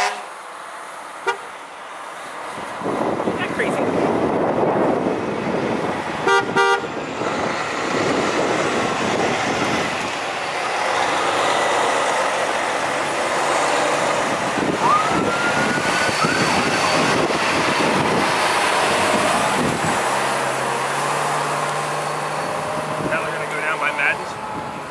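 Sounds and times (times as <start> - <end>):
short horn blasts: 0.0 - 0.3, 1.2 - 1.5, 6.2 - 7.0
fire trucks driving past: 0.0 - 24.9
siren whoop and blip: 14.7 - 18.2.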